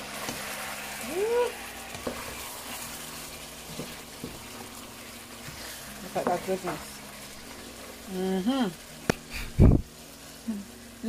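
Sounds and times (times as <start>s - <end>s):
chicken sizzling in a pot: 0.0s - 11.0s
wooden spatula stirring: 0.1s - 6.9s.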